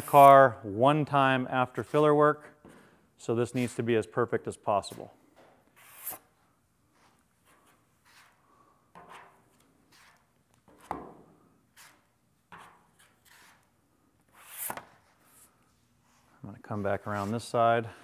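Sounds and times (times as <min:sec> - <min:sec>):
spreader scraping body filler: 0:01.6 - 0:02.2, 0:16.6 - 0:17.8.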